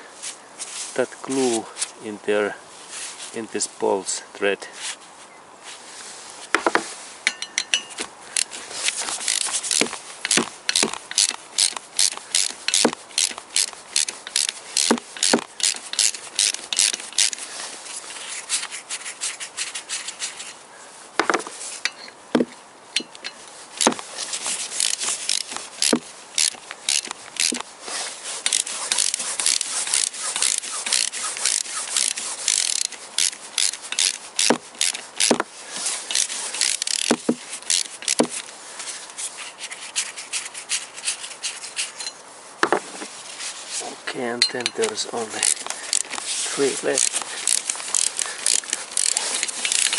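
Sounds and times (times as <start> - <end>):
wrench clicking and rasping: 7.3 - 17.4, 23.0 - 27.7, 28.4 - 38.5, 44.4 - 49.9.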